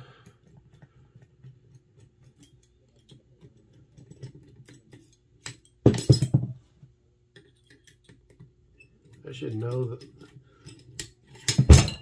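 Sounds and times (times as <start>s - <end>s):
metal parts clicking and scraping: 0.2s - 6.4s, 7.3s - 12.0s
metal parts clattering: 9.1s - 12.0s.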